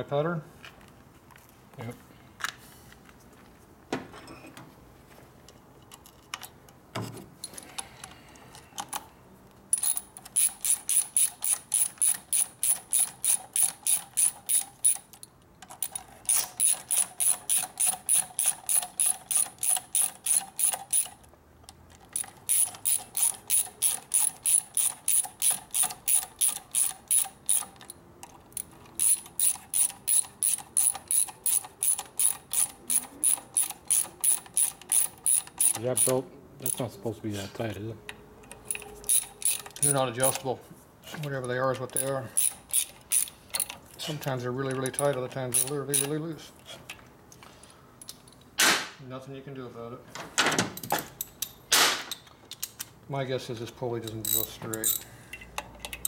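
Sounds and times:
ratchet wrench clicking: 9.7s - 21.2s, 22.1s - 36.8s, 38.5s - 40.4s, 41.8s - 43.8s, 44.7s - 46.2s, 54.0s - 56.0s.

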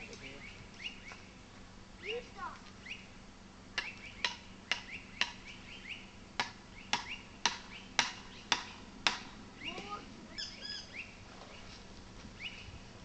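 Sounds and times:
birds chirping: 0.0s - 13.0s
bird gliding calls: 0.2s - 1.4s, 2.0s - 3.2s, 3.8s - 8.9s, 9.5s - 13.0s
tent peg being hammered: 3.8s - 5.4s, 6.4s - 9.3s.

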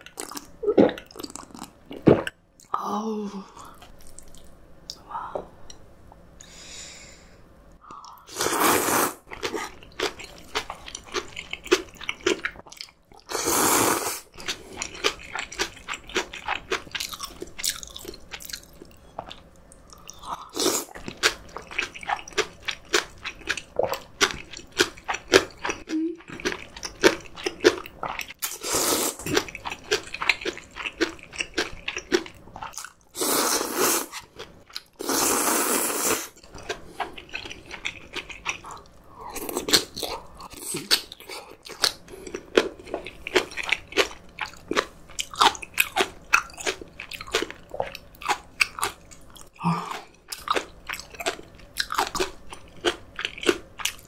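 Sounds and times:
loud noodle slurps: 8.3s - 9.2s, 13.3s - 14.3s, 28.5s - 29.3s, 33.2s - 34.2s, 35.0s - 36.4s.

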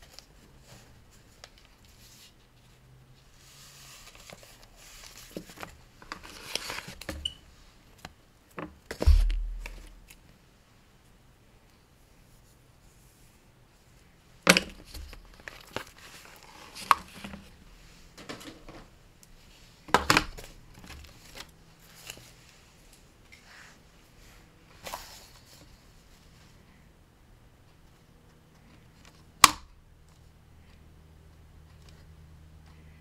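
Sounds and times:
paper rustling and crinkling: 3.4s - 7.2s, 14.8s - 17.6s.

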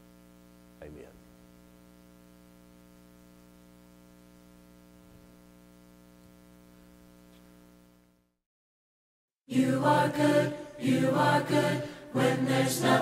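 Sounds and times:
faint electrical hum: 0.0s - 8.4s.

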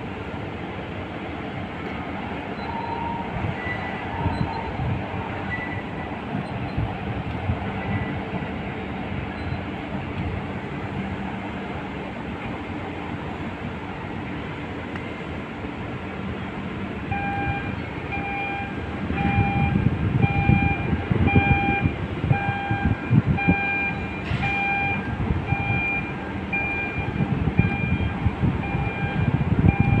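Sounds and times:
electronic warning beeps: 2.6s - 4.7s, 9.3s - 9.7s, 17.1s - 30.0s.

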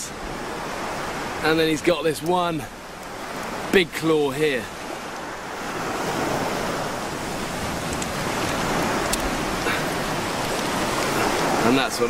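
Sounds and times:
surf washing on shore: 0.0s - 12.0s
faint clicks: 7.8s - 9.4s.

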